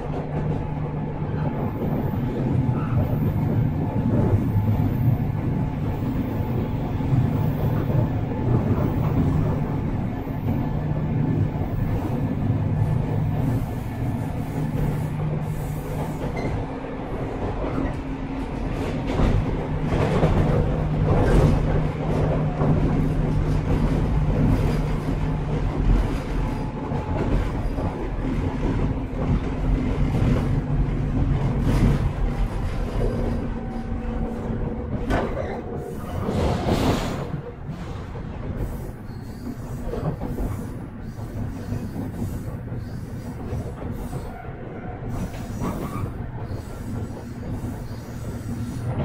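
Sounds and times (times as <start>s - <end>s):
train wheels rumbling on rail: 0.0s - 49.0s
clacks over rail joints: 14.4s - 38.8s.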